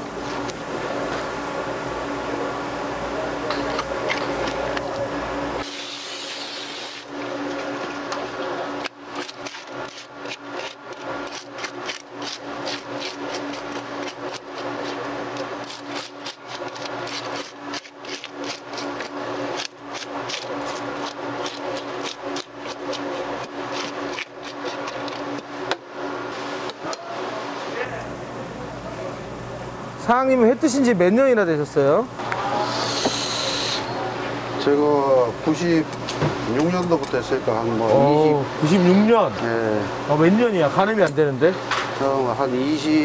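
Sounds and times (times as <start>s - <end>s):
steady low hum: 0.0s - 43.0s
blade scraping fish: 9.1s - 25.3s.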